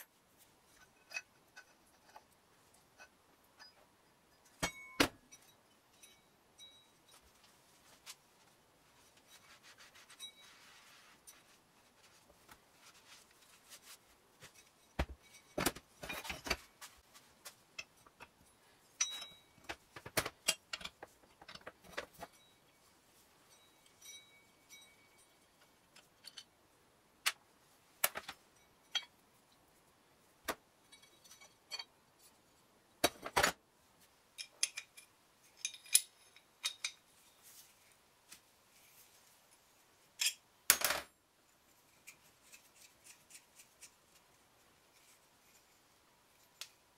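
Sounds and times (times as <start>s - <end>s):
metal parts clinking on workbench: 34.4s - 37.0s.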